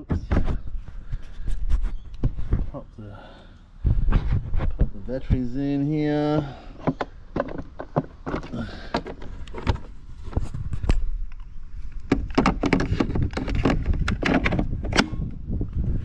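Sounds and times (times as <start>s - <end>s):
plastic clicks and scraping: 6.8s - 15.4s.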